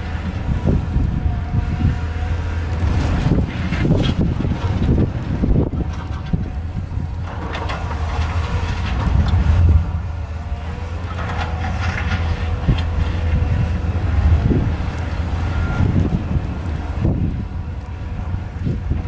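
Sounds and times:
diesel excavator engine running: 0.0s - 19.0s
irregular scraping and clatter: 2.5s - 17.2s.

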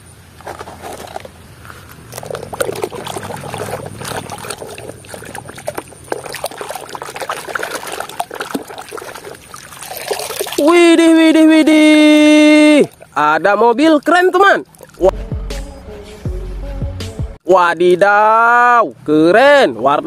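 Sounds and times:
water sloshing in a plastic tub: 0.4s - 15.1s.

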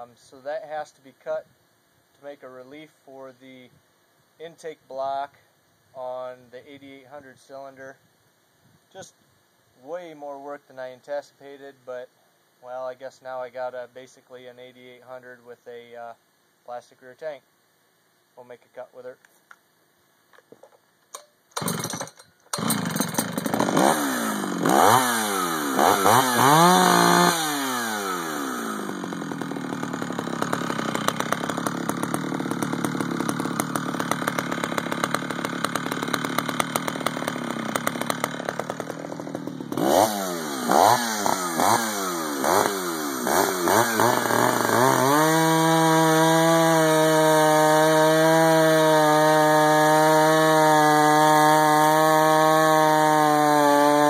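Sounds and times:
chainsaw cutting log: 21.2s - 54.0s
chainsaw revving and idling: 21.5s - 54.0s.

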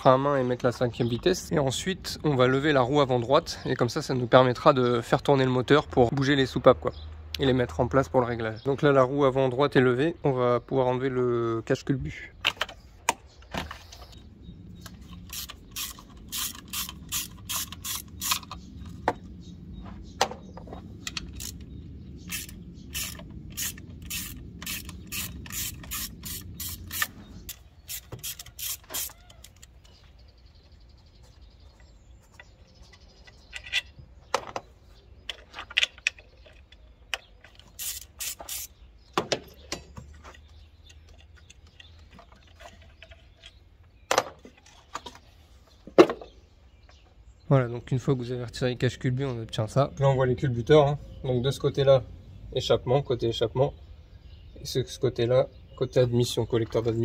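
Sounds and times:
hand ratchet clicking: 15.3s - 18.6s, 22.3s - 29.7s, 37.8s - 38.7s.

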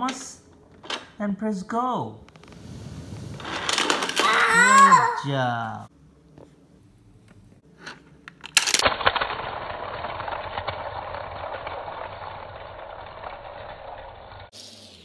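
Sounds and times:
toy car rolling on wooden floor: 2.4s - 4.9s, 8.5s - 15.0s.

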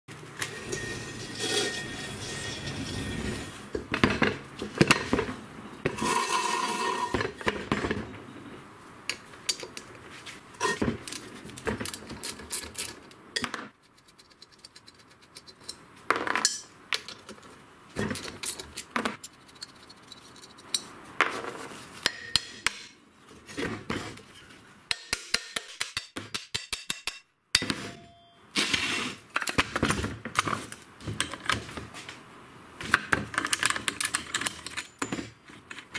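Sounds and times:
metal parts and tools clanking: 0.4s - 8.0s, 14.2s - 21.0s, 32.9s - 35.9s.

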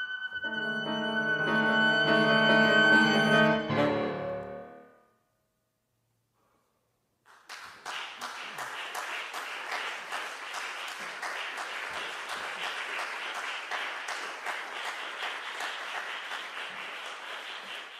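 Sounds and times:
audience applauding: 7.3s - 17.9s.

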